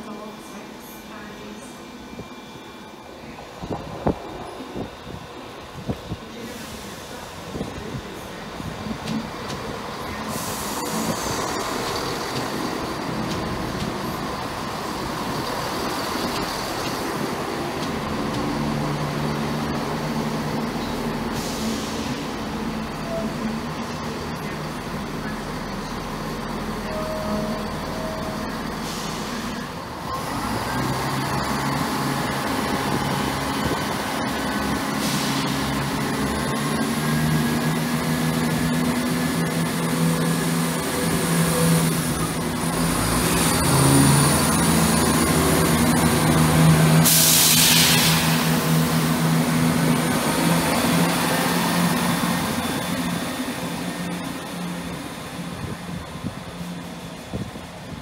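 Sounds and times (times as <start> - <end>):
diesel train engines running: 0.0 - 58.0
air brake hiss: 10.3 - 11.2, 21.3 - 22.3, 28.8 - 29.6, 34.9 - 35.6, 47.0 - 48.6.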